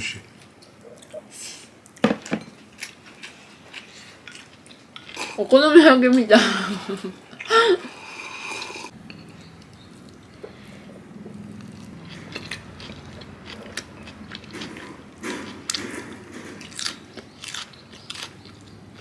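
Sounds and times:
chewing: 2.8s - 5.4s, 7.4s - 19.0s.

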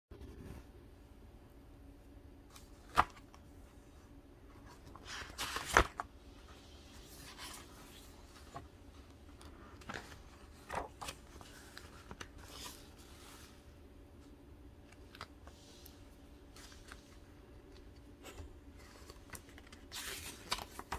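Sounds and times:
paper pages rustling: 2.5s - 3.4s, 4.6s - 13.7s, 14.8s - 20.9s.

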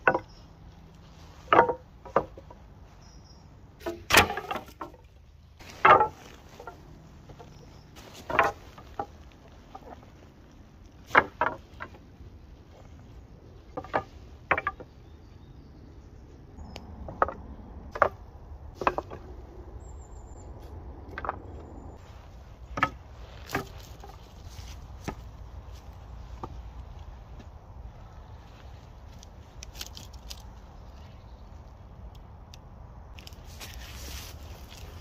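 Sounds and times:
wooden poles knocking: 0.0s - 3.0s, 3.8s - 15.4s, 16.6s - 19.8s, 20.5s - 28.0s.

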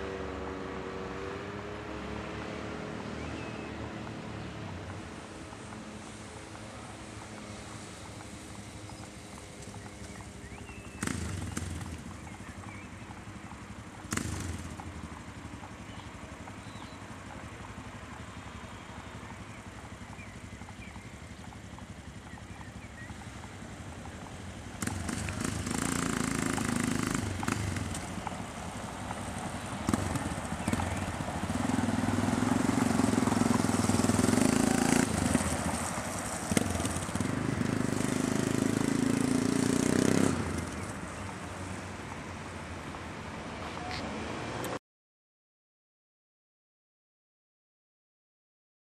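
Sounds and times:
motorcycle accelerating: 0.0s - 44.8s
motorcycle engine idling: 4.7s - 41.8s.

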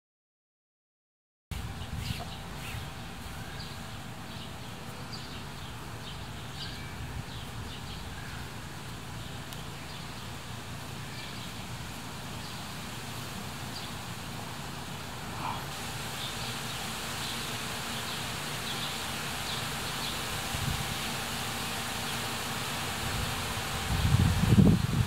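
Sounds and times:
steady low rumble: 1.5s - 25.0s
small birds chirping: 1.6s - 25.0s.

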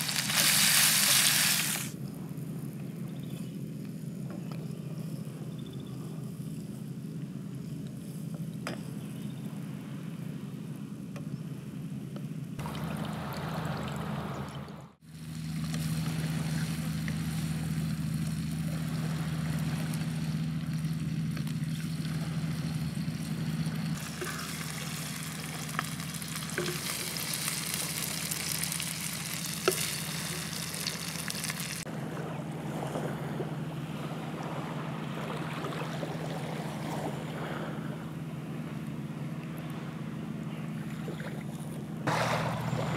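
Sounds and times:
squid sizzling in a frying pan: 0.0s - 1.9s, 24.4s - 31.8s
steady low hum: 0.0s - 42.9s.

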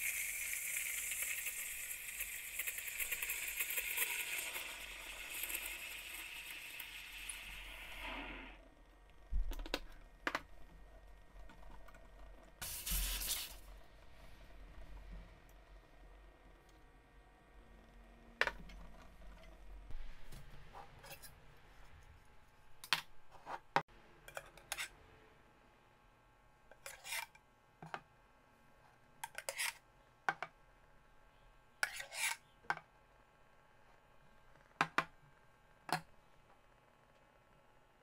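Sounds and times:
metal spoon scraping a pitcher: 24.3s - 24.9s, 26.7s - 27.3s, 29.2s - 29.8s, 31.8s - 32.4s.

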